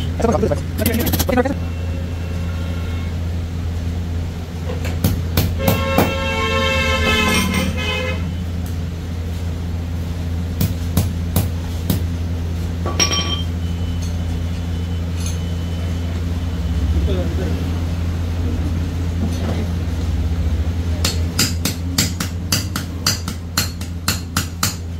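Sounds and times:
engine hum: 0.0 - 24.1
higher-pitched horn: 1.3 - 3.4, 5.6 - 8.4
vehicle horn: 1.6 - 3.3, 5.6 - 8.5.

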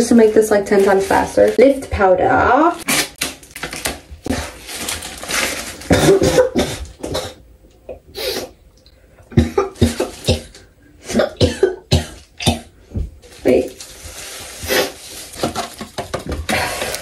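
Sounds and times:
woman coughing: 5.9 - 7.4, 9.4 - 12.7.

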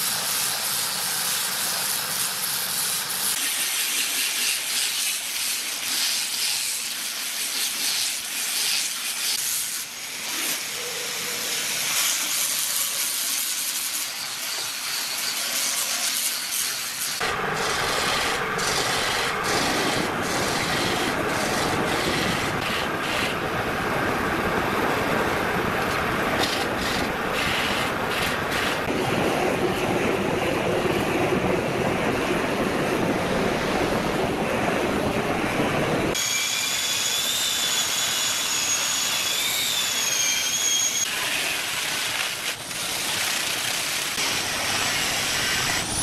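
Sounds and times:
power sander rasping on wood: 3.0 - 23.4
blowtorch flame rushing: 16.9 - 37.3, 37.9 - 46.0.

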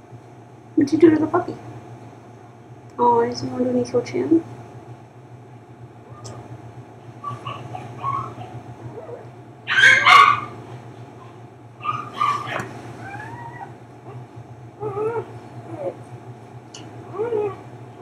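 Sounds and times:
steady low hum: 0.0 - 18.0
puppies whimpering and yipping: 7.2 - 10.6, 11.8 - 14.2, 14.8 - 16.0, 17.1 - 17.6.

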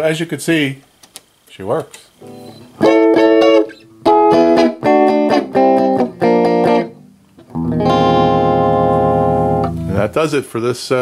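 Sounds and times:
electric guitar strummed chords: 2.2 - 10.2
guitar chord ringing: 2.2 - 10.2.

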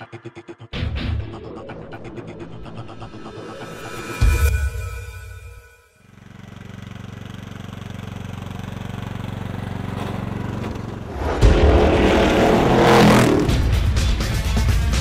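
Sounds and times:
loud engine: 0.8 - 14.4
riding lawn mower engine: 6.1 - 11.1.

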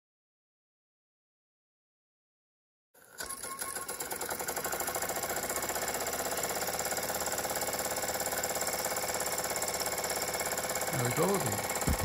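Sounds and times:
toy steam engine running: 3.0 - 12.0.

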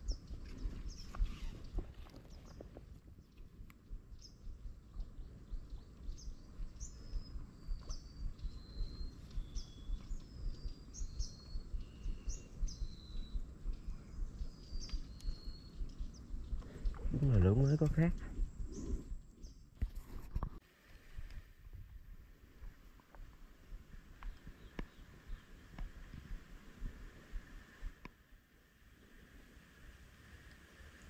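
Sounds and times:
uneven low rumble: 2.7 - 19.7
birds whistling: 4.1 - 17.7.

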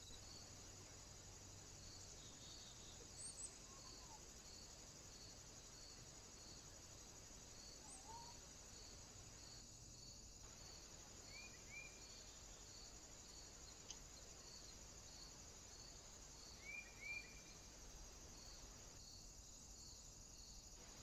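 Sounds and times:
insects trilling: 0.0 - 21.0
faint click: 13.8 - 14.1.

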